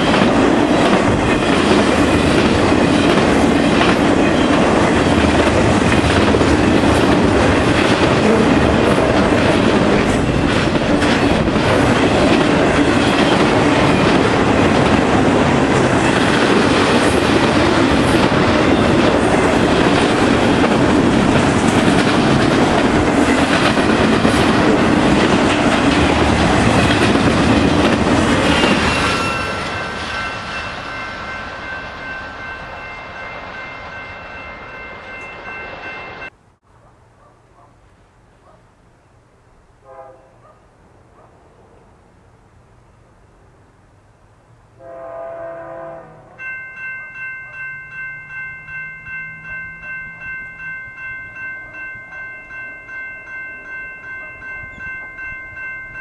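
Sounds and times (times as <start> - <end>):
wheels clacking over rail joints: 0.0 - 30.9
freight train rumbling past: 0.0 - 36.4, 38.2 - 56.0.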